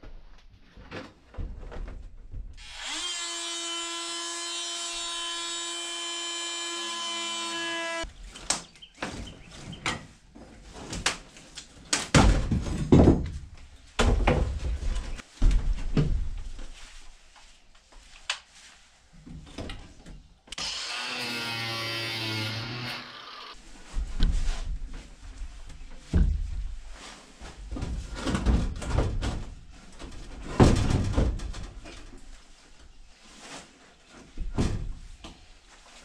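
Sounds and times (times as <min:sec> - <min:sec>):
power tool whining: 0:02.6 - 0:08.0, 0:20.5 - 0:23.6
wood cracking and knocking: 0:11.9 - 0:16.4, 0:27.7 - 0:32.1.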